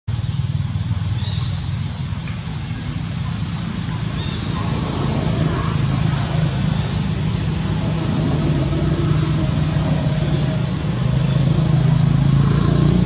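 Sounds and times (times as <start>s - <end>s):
high hiss: 0.1s - 13.0s
low rumble: 2.9s - 13.0s.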